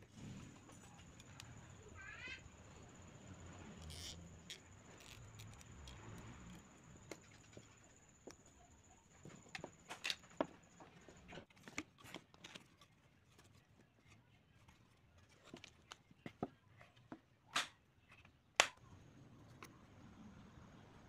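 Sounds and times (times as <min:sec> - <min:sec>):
bamboo and wooden parts clicking: 0:03.8 - 0:08.4.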